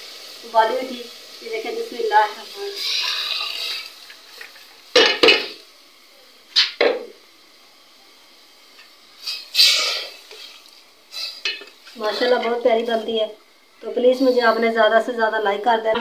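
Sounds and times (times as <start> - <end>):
ladle scraping a pot: 9.2 - 12.5.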